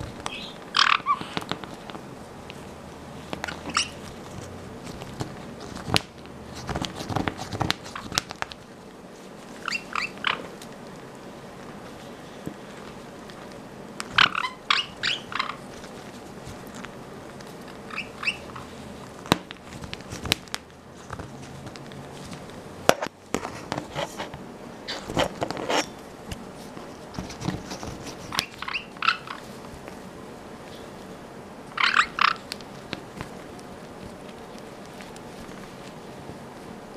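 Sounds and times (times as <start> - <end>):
parrots squeaky chirps: 0.2 - 1.4, 3.4 - 4.0, 9.6 - 10.5, 14.1 - 15.6, 17.9 - 18.7, 28.3 - 29.5, 31.7 - 32.4
bird rustling on towel: 15.3 - 22.6, 25.0 - 36.9.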